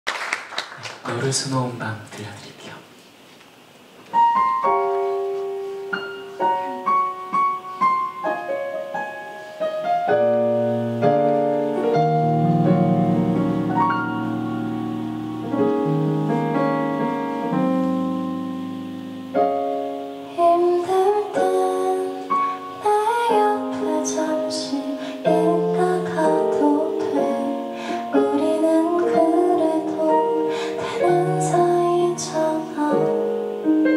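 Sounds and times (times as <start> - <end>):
keyboard playing piano chords: 4.1 - 33.9
woman singing: 20.3 - 33.4.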